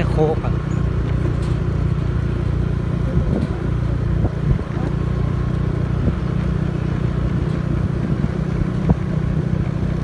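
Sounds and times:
motorcycle engine running: 0.0 - 10.0
wind rumble on microphone: 2.9 - 5.1, 5.8 - 10.0.

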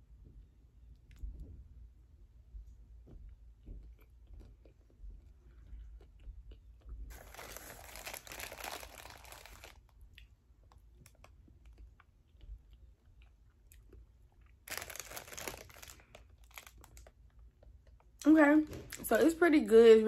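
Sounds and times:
person chewing: 3.8 - 18.0
rustling: 7.1 - 9.9, 14.7 - 17.1.

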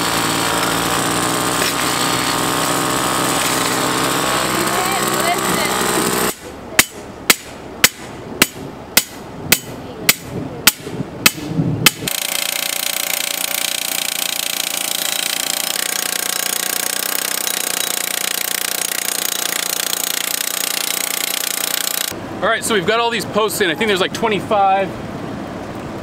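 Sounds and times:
powered post driver hammering: 0.0 - 22.2
hammer striking steel post: 5.8 - 22.1.

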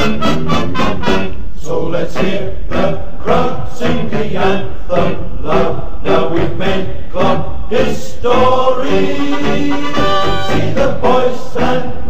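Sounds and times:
instrumental accompaniment: 0.0 - 1.5, 9.0 - 11.7
chorus singing: 0.0 - 12.0.

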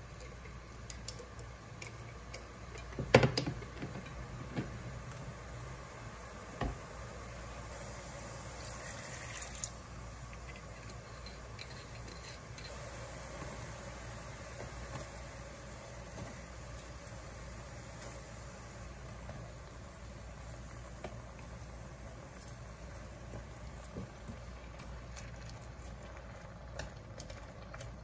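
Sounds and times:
sauce simmering and bubbling: 0.0 - 28.0.

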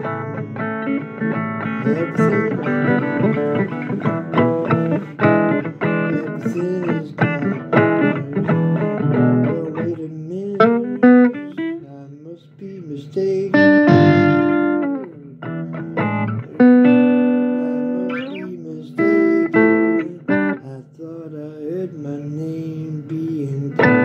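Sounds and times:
blues guitar playing: 0.0 - 24.0.

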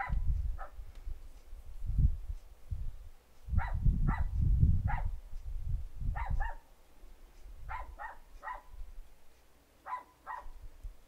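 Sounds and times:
dog barking: 3.6 - 5.2, 6.2 - 6.7, 7.7 - 8.8, 9.8 - 10.6.

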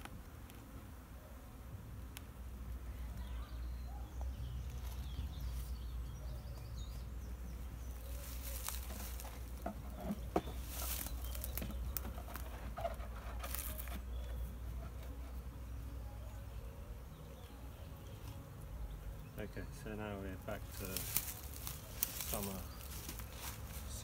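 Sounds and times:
honeybees buzzing: 0.0 - 24.0
wooden boxes knocking and scraping: 8.8 - 14.2.

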